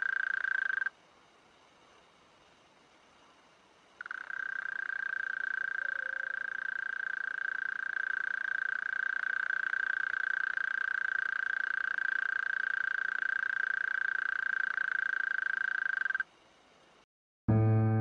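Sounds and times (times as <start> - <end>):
mole cricket trilling: 0.0 - 0.9, 4.0 - 16.3.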